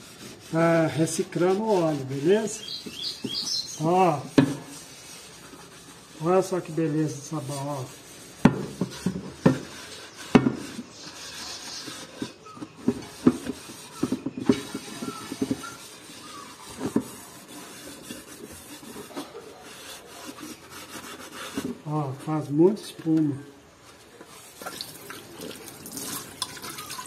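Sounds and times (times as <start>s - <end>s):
sponge scrubbing metal pot: 0.0s - 21.9s, 24.4s - 27.0s
pot knocking and clinking: 24.6s - 27.0s.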